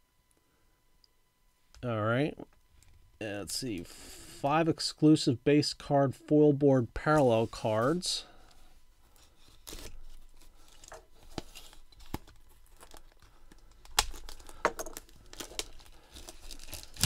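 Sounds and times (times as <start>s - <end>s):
plastic packaging crinkling and tearing: 9.4s - 17.0s.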